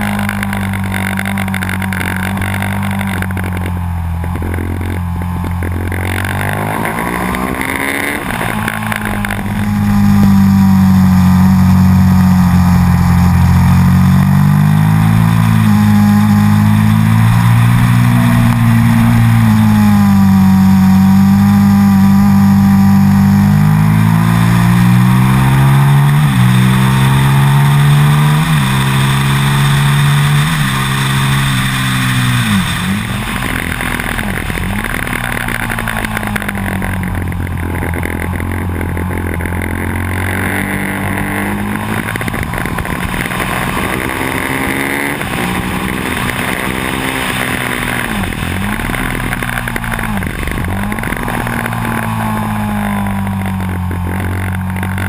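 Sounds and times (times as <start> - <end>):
motorcycle engine revving: 0.0 - 55.0
wind rushing over camera: 23.8 - 55.0.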